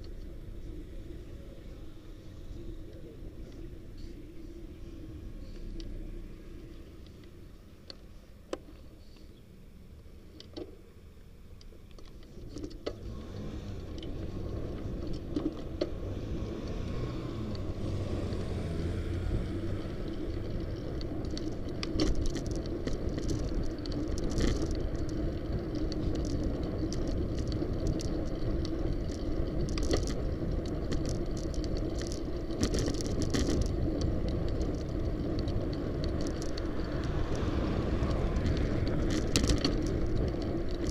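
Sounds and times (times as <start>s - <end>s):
road and wind rumble: 0.0s - 40.9s
bike rattles and clicks: 10.0s - 40.9s.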